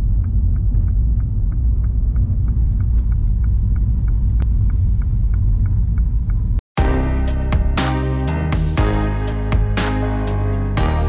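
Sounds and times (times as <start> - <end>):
light regular ticking: 0.0 - 6.6
engine and road rumble: 0.0 - 11.0.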